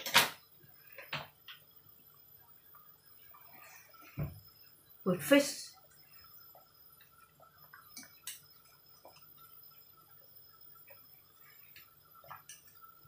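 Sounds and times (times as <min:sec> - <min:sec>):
soup bubbling with faint pops: 0:00.4 - 0:05.1, 0:05.7 - 0:13.0.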